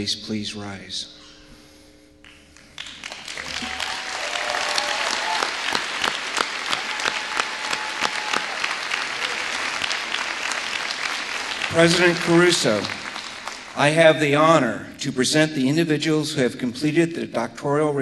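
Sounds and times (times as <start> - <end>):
audience applauding: 2.6 - 14.6.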